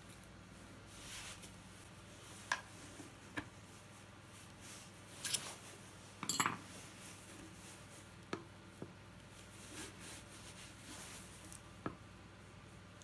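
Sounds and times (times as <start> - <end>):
tools clattering: 6.2 - 6.6.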